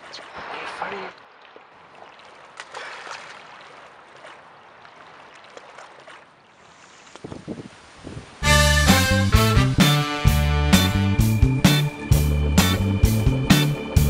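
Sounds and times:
small water splashes: 0:00.0 - 0:08.4
lake water lapping at shore: 0:00.0 - 0:08.5.

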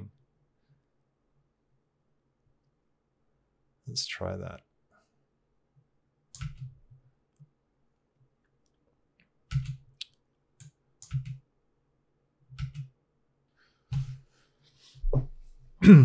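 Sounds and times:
keyboard and mouse clicks: 0:06.3 - 0:07.5, 0:09.2 - 0:11.4, 0:12.5 - 0:13.0.

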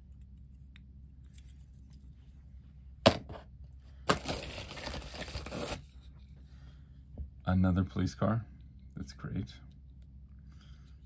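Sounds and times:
plastic mailer crinkling: 0:04.1 - 0:05.8.

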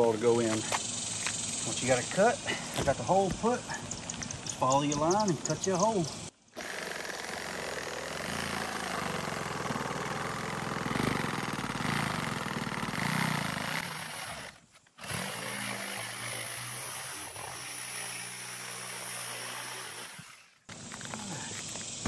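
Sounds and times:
reciprocating saw cutting: 0:06.6 - 0:20.6.

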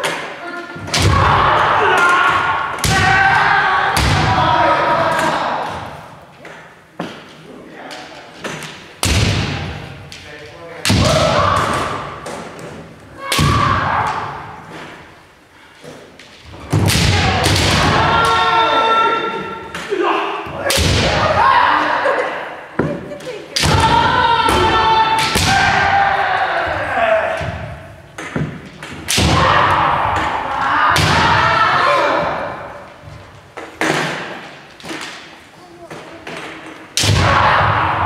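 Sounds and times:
people shouting: 0:00.0 - 0:06.0, 0:10.9 - 0:12.5, 0:13.1 - 0:14.8, 0:16.8 - 0:22.5, 0:23.2 - 0:27.9, 0:29.1 - 0:33.1, 0:37.0 - 0:38.0
bamboo swords striking: 0:28.2 - 0:31.6.

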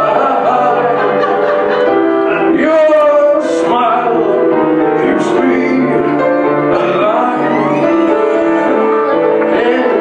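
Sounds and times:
piano accompaniment: 0:00.0 - 0:10.0
person singing into a microphone: 0:02.3 - 0:10.0.

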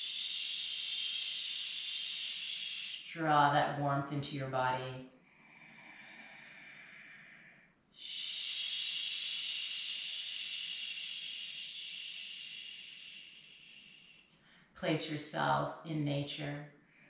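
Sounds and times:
woman exhaling with shh sound: 0:00.0 - 0:03.1, 0:05.4 - 0:14.7.

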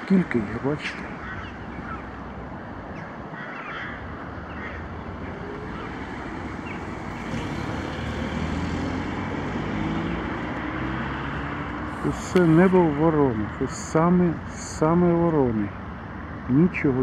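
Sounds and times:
crow cawing: 0:01.0 - 0:06.0
vehicle rumble and hiss: 0:04.1 - 0:17.0.

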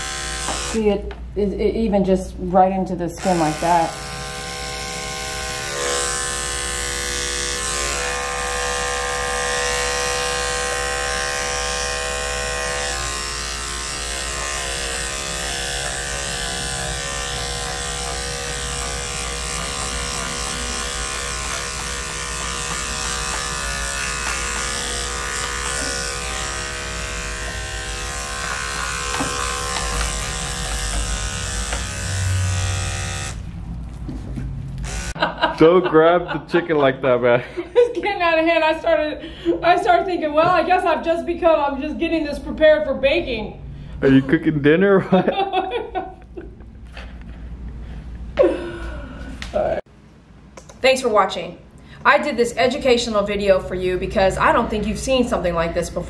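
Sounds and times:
electric clipper buzzing: 0:00.0 - 0:01.1, 0:03.2 - 0:33.5, 0:34.7 - 0:35.5.

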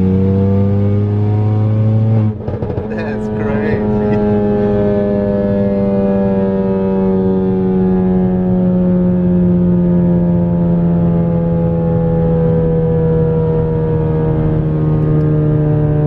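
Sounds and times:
car engine in cabin: 0:00.0 - 0:16.0
road noise: 0:00.0 - 0:16.0.

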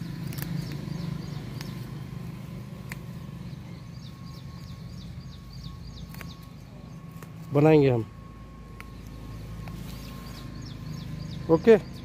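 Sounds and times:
leaves snapping: 0:00.0 - 0:03.4, 0:06.0 - 0:07.6
small bird chirping: 0:00.0 - 0:12.0
steady low hum: 0:00.0 - 0:12.0.

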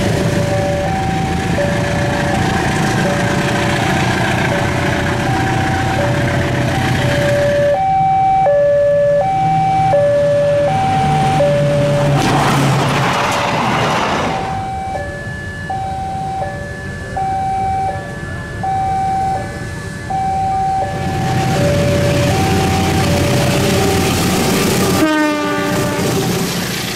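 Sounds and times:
rush of train noise: 0:00.0 - 0:07.5, 0:10.6 - 0:14.8, 0:20.9 - 0:26.9
diesel locomotive engine: 0:00.0 - 0:26.9
level crossing ding-dong alarm: 0:00.3 - 0:12.0, 0:14.5 - 0:22.9.

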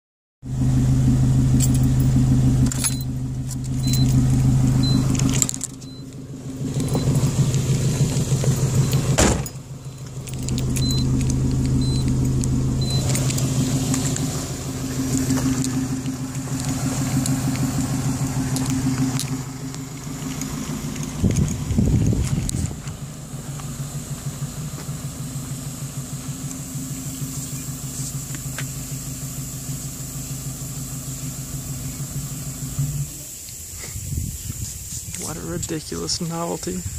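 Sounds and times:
car engine idling: 0:00.4 - 0:36.9
keys jingling: 0:01.5 - 0:23.0
car door shutting: 0:02.6 - 0:25.2
short high beeps: 0:03.8 - 0:04.2, 0:04.8 - 0:05.2, 0:05.8 - 0:06.1, 0:10.7 - 0:11.2, 0:11.8 - 0:12.2, 0:12.8 - 0:13.1.

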